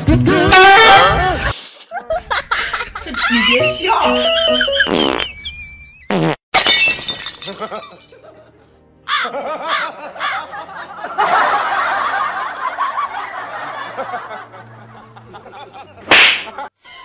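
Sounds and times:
person laughing: 0.3 - 5.8.

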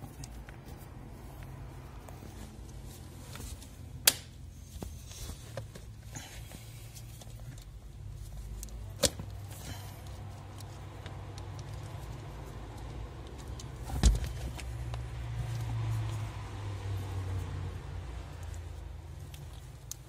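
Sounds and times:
wire handling ticks: 8.4 - 16.2.

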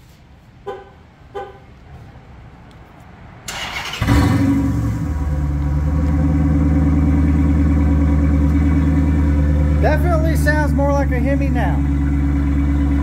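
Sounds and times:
car engine starting and idling: 3.4 - 13.0.

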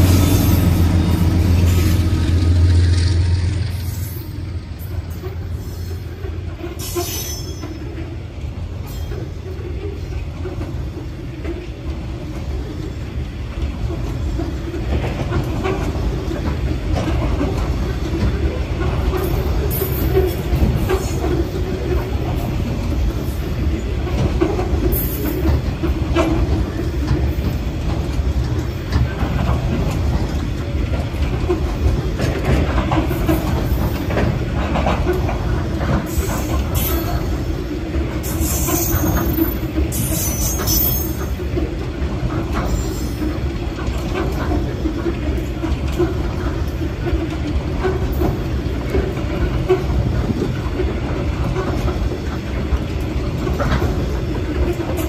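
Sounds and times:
train wagons rumbling: 0.0 - 55.0
high-pitched wheel squeals: 3.8 - 7.8.

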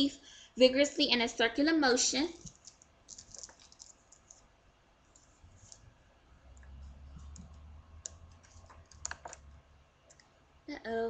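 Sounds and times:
small objects clicking: 2.4 - 4.5, 6.6 - 9.5.

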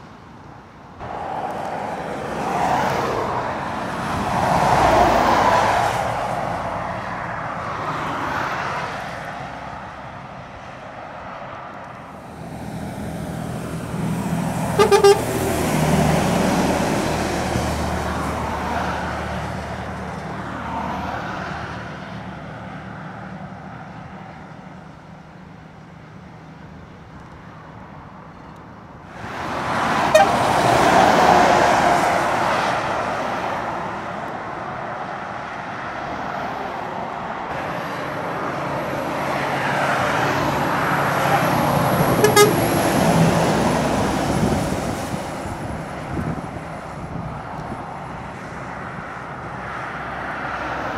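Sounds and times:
diesel lorries climbing uphill: 0.0 - 50.9.

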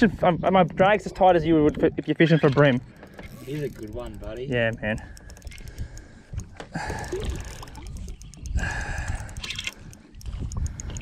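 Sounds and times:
water sloshing and splashing: 6.2 - 8.3.

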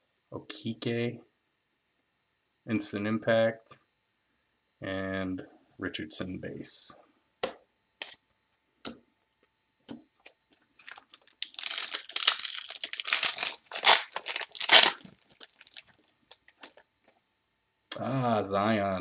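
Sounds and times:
wrapper tearing and crinkling: 10.7 - 16.8.

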